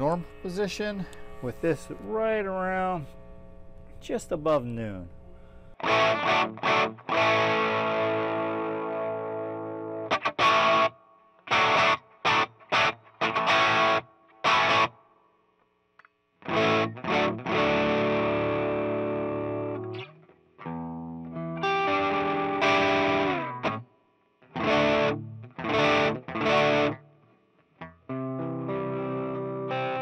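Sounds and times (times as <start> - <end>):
overdriven electric guitar chords: 0.0 - 4.0, 5.1 - 15.1, 16.4 - 30.0.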